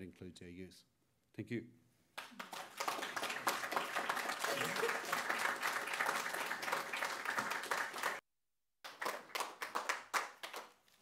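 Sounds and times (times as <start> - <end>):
audience applauding: 2.2 - 8.2, 8.8 - 10.8.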